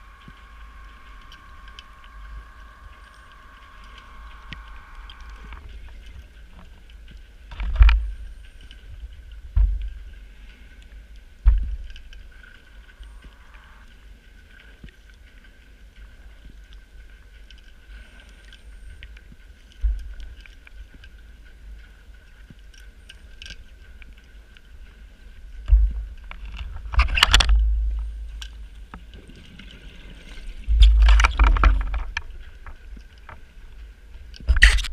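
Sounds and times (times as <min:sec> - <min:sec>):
underwater air bubbles: 0:00.0 - 0:13.9
low rumble: 0:00.0 - 0:14.6, 0:24.0 - 0:34.9
faint high whine: 0:00.0 - 0:34.9.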